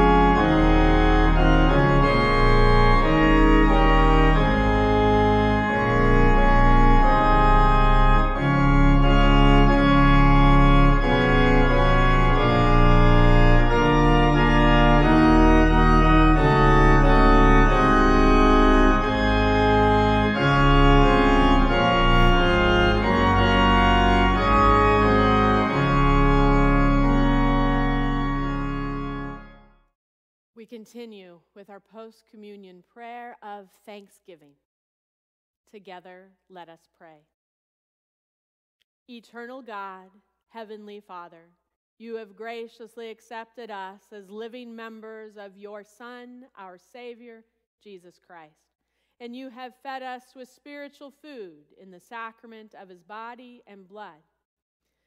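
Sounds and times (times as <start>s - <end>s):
organ chords: 0.0s - 29.8s.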